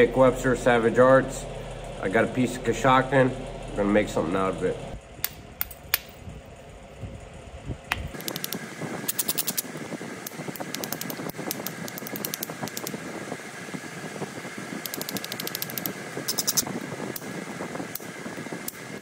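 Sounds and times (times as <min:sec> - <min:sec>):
tool rasping along flint: 0:08.2 - 0:09.7, 0:14.9 - 0:16.6.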